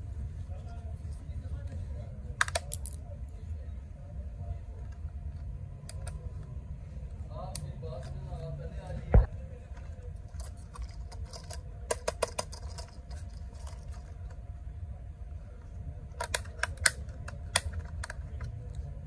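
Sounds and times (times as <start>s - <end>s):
low steady hum: 0.0s - 19.0s
plastic clicks and taps: 2.4s - 3.0s, 10.8s - 12.9s, 16.2s - 18.6s.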